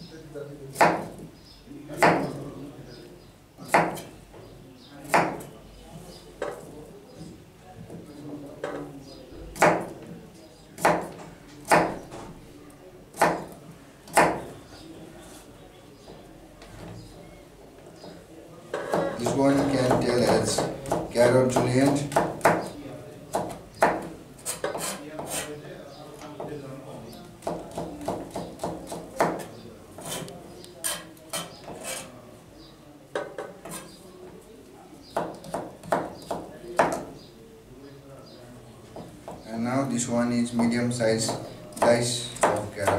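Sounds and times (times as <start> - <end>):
knife chopping carrot on board: 0.8 - 1.2, 3.7 - 4.1, 5.1 - 5.5, 9.6 - 10.0, 10.8 - 12.0, 13.1 - 14.4, 23.3 - 25.5, 27.4 - 32.0, 41.2 - 42.9.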